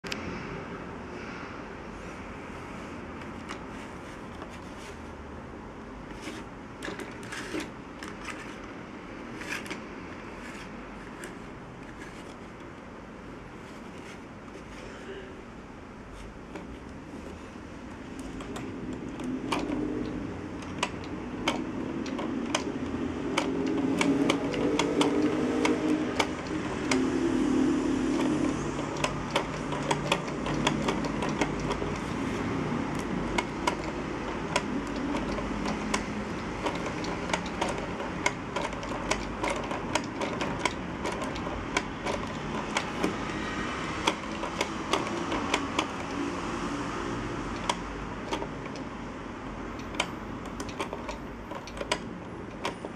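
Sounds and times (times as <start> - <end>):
low whirring hum: 0.0 - 52.9
plastic clicks and clacks: 6.1 - 8.7, 18.2 - 27.2, 27.9 - 46.2, 47.5 - 48.9, 49.7 - 52.9.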